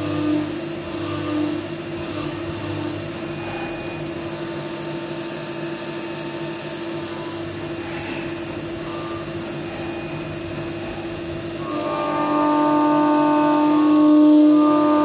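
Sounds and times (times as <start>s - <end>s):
end mill cutting metal: 0.0s - 15.0s
milling machine spindle running: 0.0s - 15.0s.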